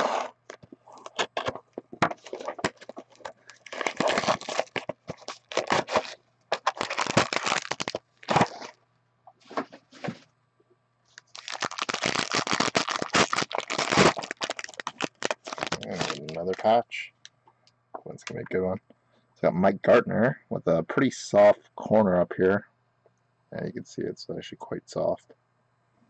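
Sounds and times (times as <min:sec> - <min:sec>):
card box opening: 0:00.0 - 0:08.8
foil pack crinkling and tearing: 0:00.4 - 0:08.8, 0:11.1 - 0:16.8.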